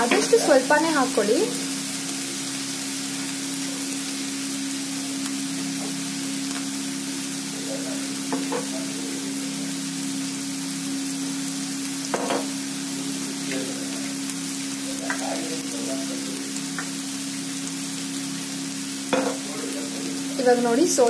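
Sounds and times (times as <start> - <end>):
vegetables and egg sizzling in oil: 0.0 - 21.0.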